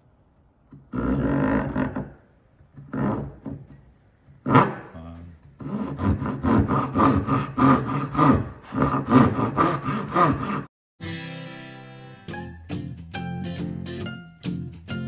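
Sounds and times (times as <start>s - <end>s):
hand saw cutting wood: 4.4s - 4.9s, 5.6s - 10.7s
music: 11.0s - 15.0s.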